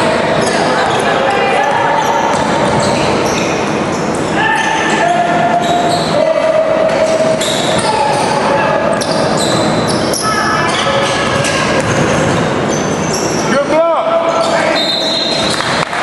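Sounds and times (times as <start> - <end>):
shoes squeaking on gym floor: 0.3 - 6.2, 7.0 - 15.8
basketball dribbling: 2.0 - 3.5, 7.0 - 13.4.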